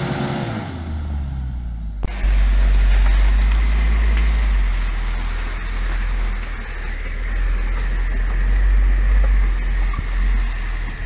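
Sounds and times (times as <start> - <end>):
car engine droning inside cabin: 0.0 - 11.0.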